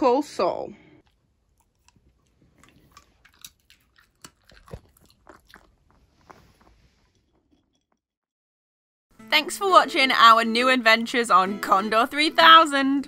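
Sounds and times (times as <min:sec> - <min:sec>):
dog crunching a treat: 0:01.0 - 0:07.6.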